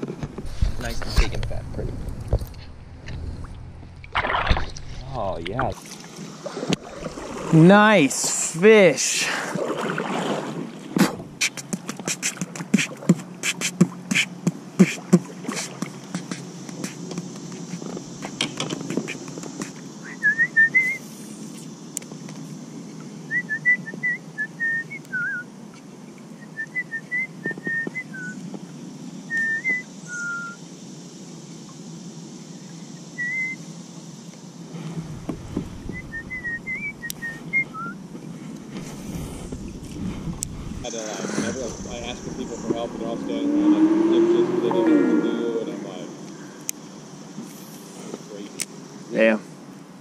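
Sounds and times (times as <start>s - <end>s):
wind: 0.0s - 50.0s
rushing water: 2.4s - 17.0s, 38.7s - 44.9s
person whistling a tune: 20.1s - 21.0s, 23.3s - 25.4s, 29.3s - 30.6s, 35.9s - 38.0s.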